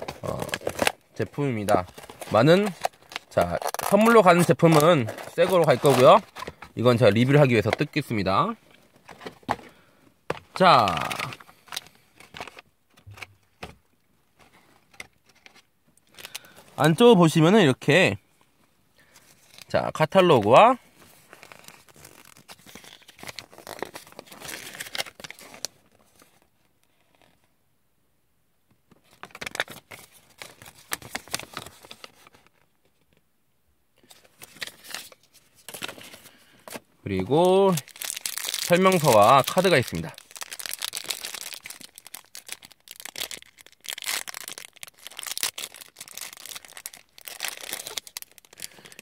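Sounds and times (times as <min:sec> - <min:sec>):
plastic packaging rattling: 0:00.0 - 0:08.1, 0:34.4 - 0:49.0
paper crinkling and rustling: 0:00.0 - 0:08.2, 0:19.0 - 0:26.5, 0:29.0 - 0:33.1, 0:34.0 - 0:49.0.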